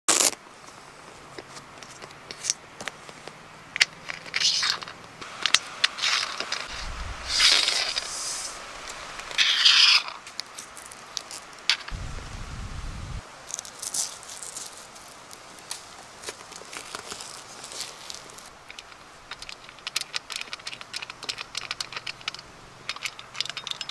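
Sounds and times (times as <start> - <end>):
low rumbles: 6.7 - 9.4, 11.9 - 13.2
plastic clicks and scrapes: 18.7 - 23.9.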